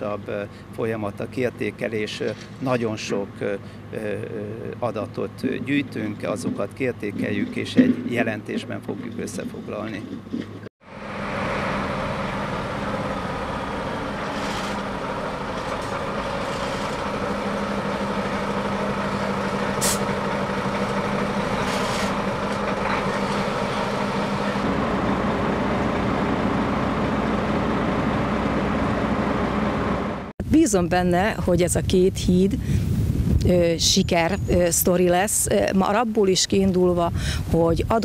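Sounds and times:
diesel truck engines running: 0.0s - 30.3s
air brake hisses: 19.8s - 20.1s.

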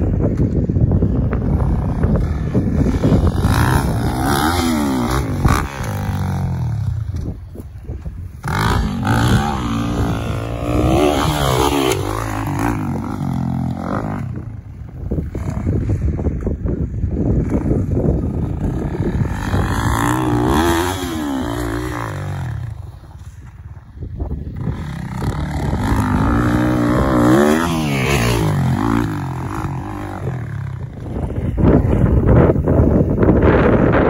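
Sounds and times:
dirt bike engine revving: 1.6s - 6.9s, 8.4s - 14.4s, 17.4s - 22.9s, 24.4s - 30.8s.

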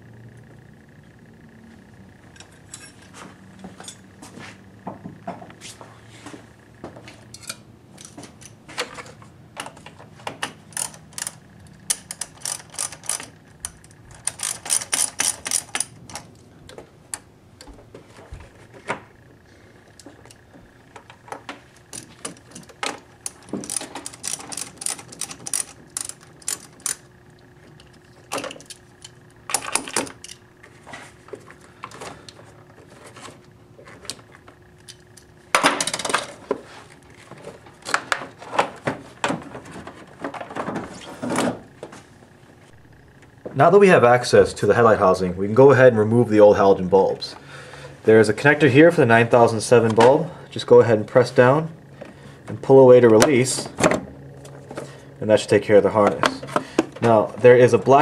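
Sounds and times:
ratchet wrench clicking: 10.7s - 16.2s, 23.2s - 27.0s.

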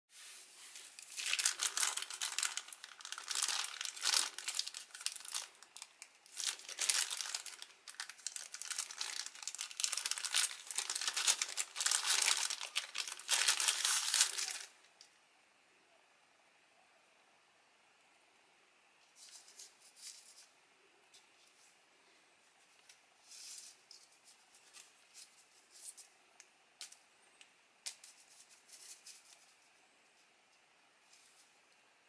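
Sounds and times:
plastic bag crinkling: 0.7s - 14.8s.

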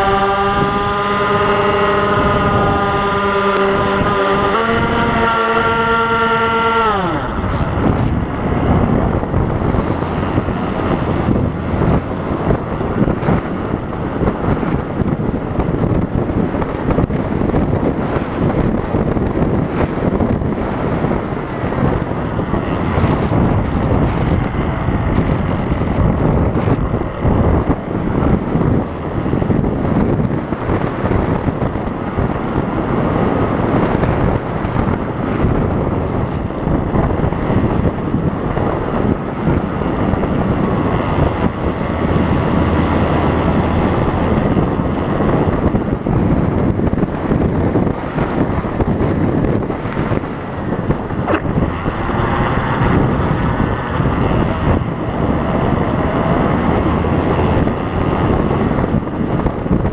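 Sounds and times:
faint propeller motor whine: 0.0s - 59.9s
wind rushing over microphone: 0.0s - 59.9s.

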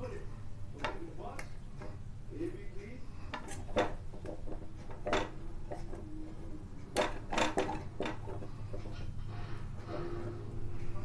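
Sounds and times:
low steady hum: 0.0s - 11.0s
spoon knocking and scraping pan: 3.3s - 9.1s.

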